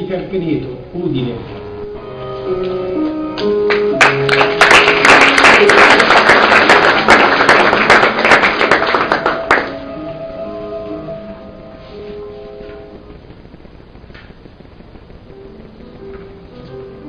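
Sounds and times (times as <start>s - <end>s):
soft instrumental music: 0.0s - 5.7s, 9.0s - 13.4s, 15.0s - 17.0s
audience applauding: 3.4s - 9.8s.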